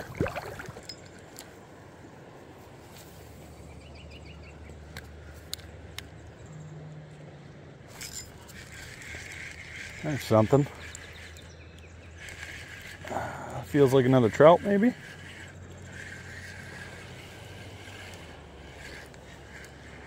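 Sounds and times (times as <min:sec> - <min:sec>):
fishing reel clicking and ticking: 0:08.0 - 0:11.4, 0:12.0 - 0:20.0.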